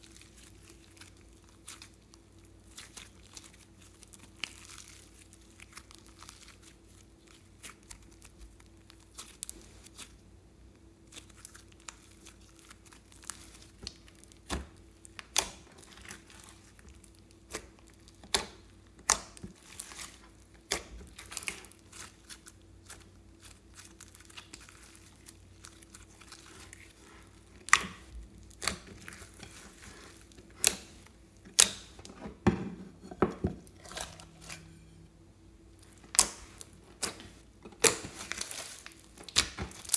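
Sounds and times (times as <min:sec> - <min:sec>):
slime crackling and popping: 0:00.0 - 0:10.2, 0:11.0 - 0:32.1, 0:35.8 - 0:39.9.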